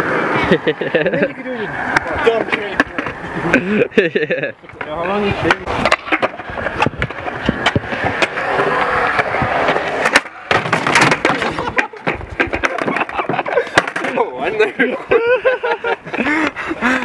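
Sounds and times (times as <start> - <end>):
skateboard wheels rolling on concrete: 0.0 - 17.0
skateboard clack: 1.7 - 3.6, 4.6 - 14.9
skateboard clattering in a fall: 4.7 - 14.6.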